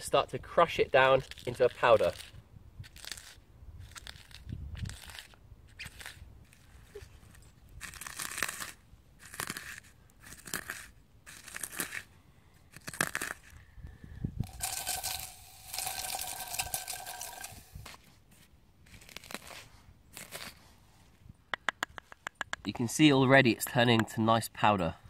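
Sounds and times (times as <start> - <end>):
charcoal crunching and grinding: 0.9 - 13.6, 14.4 - 18.0, 18.8 - 20.6.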